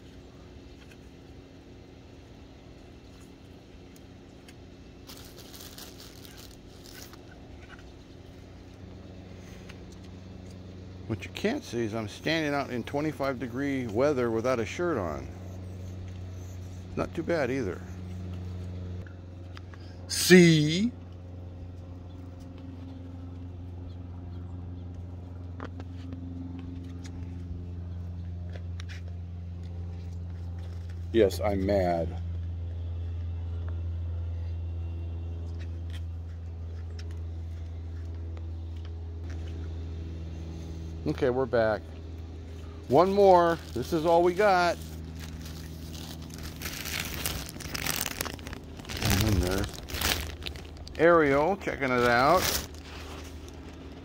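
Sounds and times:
low mechanical hum: 0.0 - 54.0
crackling crunching noise: 3.0 - 15.3, 42.6 - 54.0.

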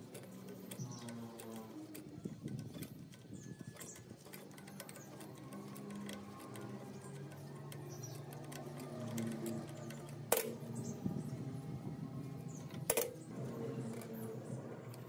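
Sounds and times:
steady low hum: 4.5 - 15.0.

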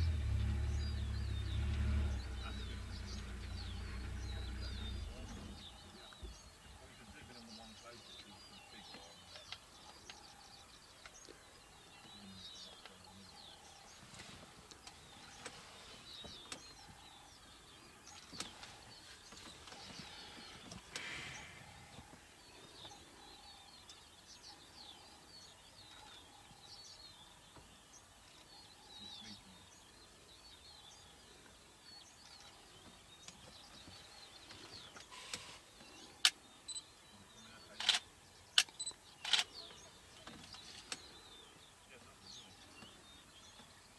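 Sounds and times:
birds chirping and calling: 0.0 - 43.9
sharp clicks: 37.8 - 39.6.

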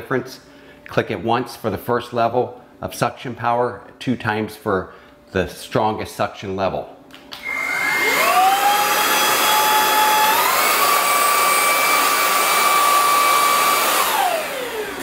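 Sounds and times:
stick vacuum motor whine: 7.3 - 15.0.

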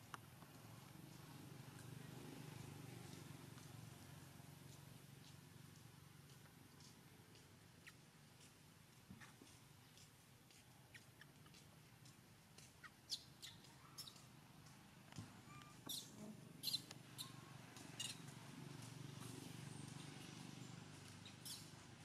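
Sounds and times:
animal squeaks and chirps: 12.8 - 14.3, 15.5 - 17.4, 18.0 - 18.3, 21.2 - 21.8.

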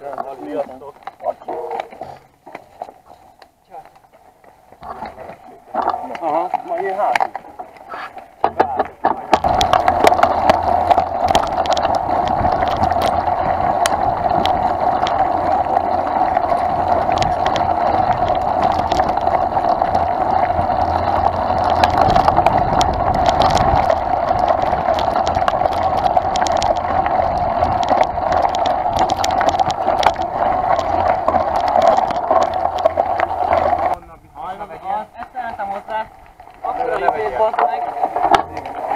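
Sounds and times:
tyre and wind noise: 1.2 - 38.9
bike rattles and knocks: 8.3 - 33.9, 36.8 - 38.9.

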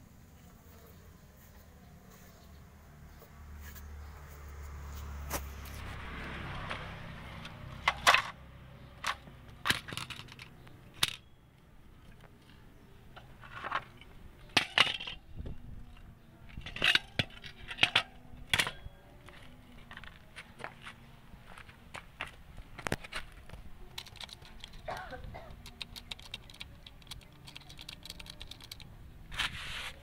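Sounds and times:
metallic clinks and knocks: 9.0 - 11.4.

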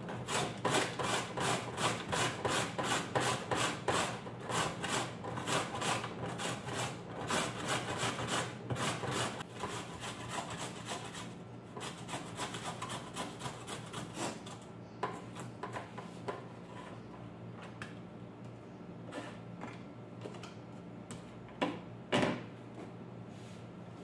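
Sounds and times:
carrot rasping on metal grater: 0.1 - 14.5.

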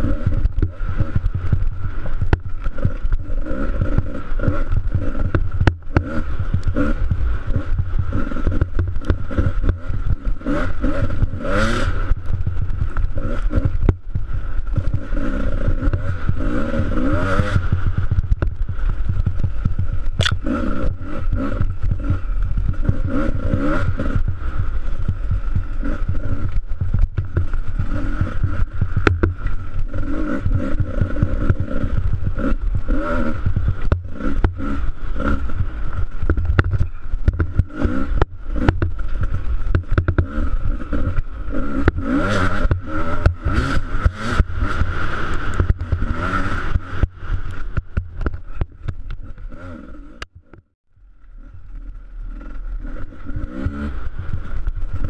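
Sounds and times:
dirt bike engine revving: 0.0 - 50.6, 51.3 - 55.0.

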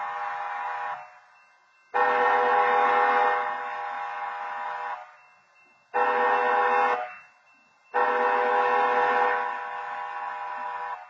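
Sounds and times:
train horn blasts: 0.0 - 1.3, 1.9 - 5.2, 5.9 - 7.3, 7.9 - 11.0.

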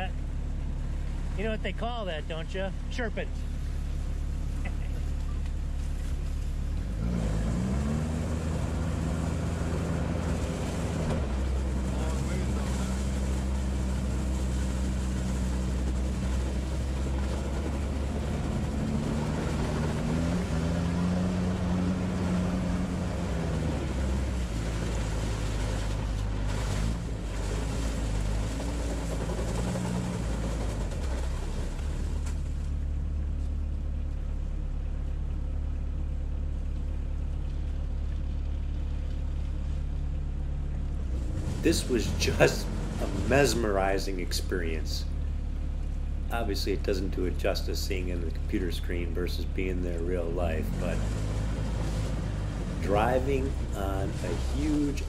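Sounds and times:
small diesel engine revving: 6.8 - 32.4, 41.0 - 44.8, 49.6 - 55.0.

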